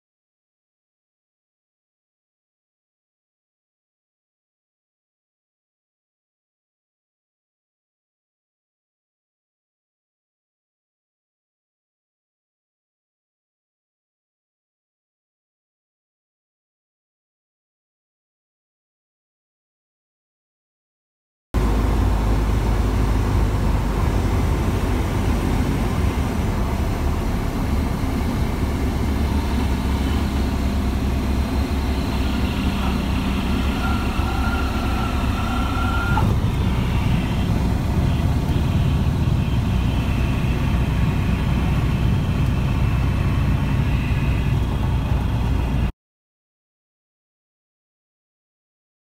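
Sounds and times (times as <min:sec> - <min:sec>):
airplane engine and propeller: 0:21.6 - 0:45.9
rumble of rolling on runway: 0:21.6 - 0:45.9
stall warning horn tone: 0:21.6 - 0:45.9.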